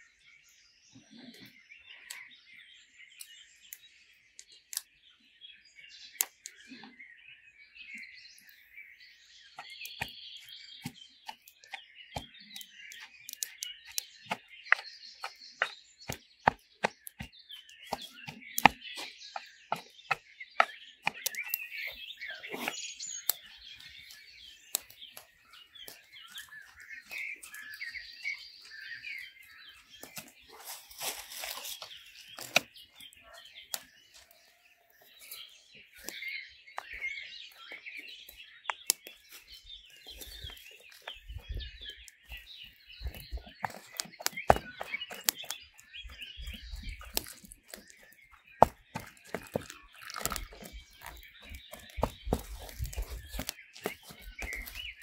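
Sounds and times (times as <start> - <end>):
small birds chirping: 0.0 - 55.0
dried fish crackling as crumbled: 10.8 - 27.9, 38.7 - 55.0.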